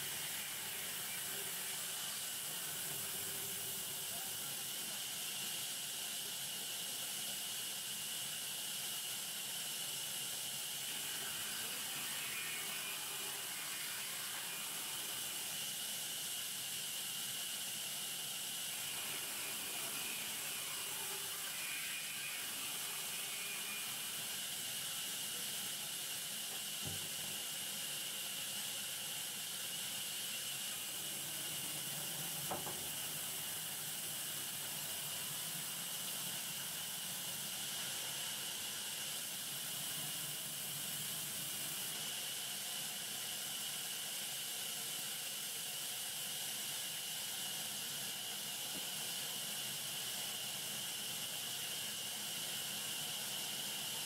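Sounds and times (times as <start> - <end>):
band saw hissing through log: 0.0 - 6.8, 9.1 - 43.8
faint knock: 32.5 - 32.8.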